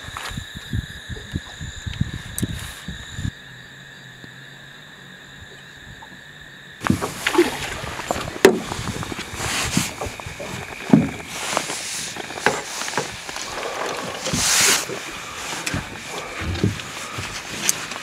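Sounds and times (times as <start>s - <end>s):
water sloshing against boat: 6.8s - 18.0s
knocks on boat hull: 8.2s - 8.7s.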